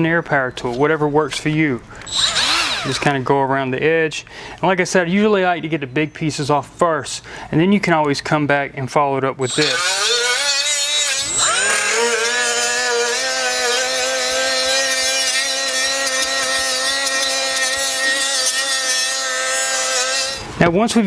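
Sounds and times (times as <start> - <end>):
rotary tool grinding: 2.0 - 3.1, 9.4 - 20.5.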